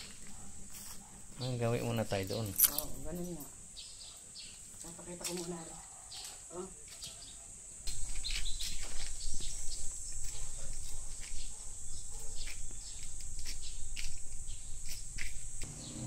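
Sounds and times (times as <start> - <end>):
scuffs and clicks from handling: 4.6 - 7.2, 7.9 - 11.6, 12.2 - 15.7.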